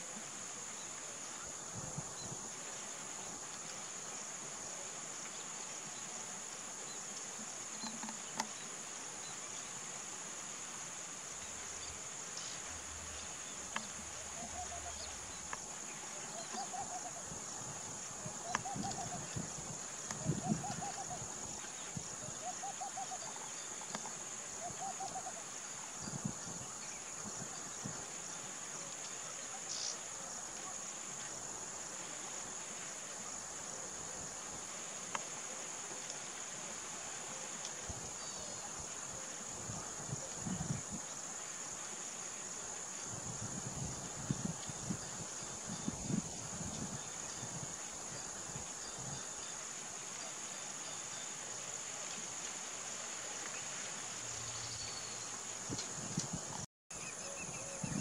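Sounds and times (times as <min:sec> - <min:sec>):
bird calling: 0:14.2 - 0:15.5.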